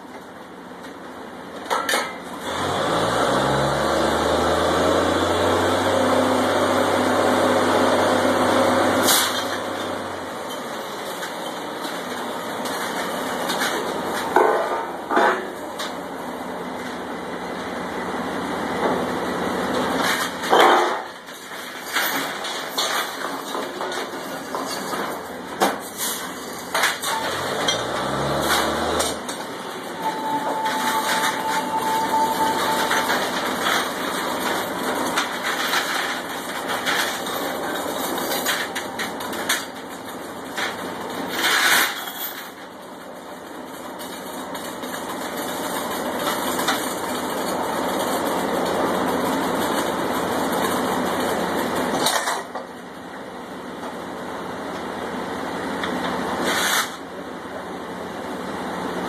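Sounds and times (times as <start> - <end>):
drilling rig engines running: 26.6 - 39.8.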